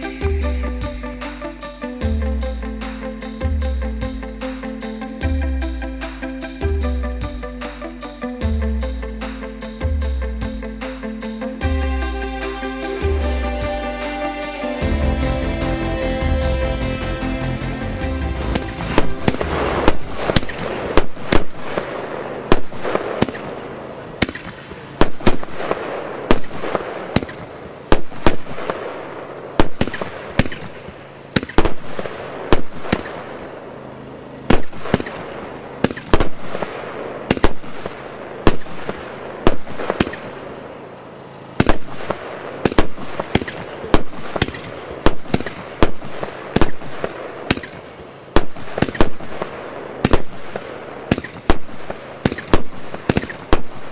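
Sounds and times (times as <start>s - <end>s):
fireworks shots and bangs: 17.8s - 40.7s, 41.3s - 53.9s.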